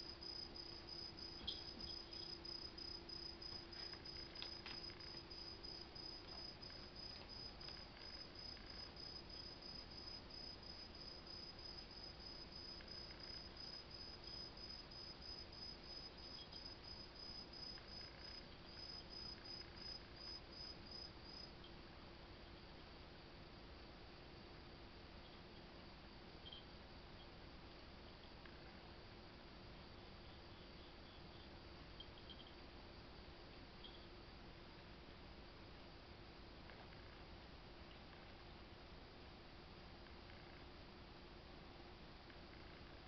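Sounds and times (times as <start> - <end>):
insect chirping: 0.0 - 21.5, 26.4 - 26.8, 29.9 - 32.6, 33.8 - 34.1
low steady hum: 0.0 - 43.0.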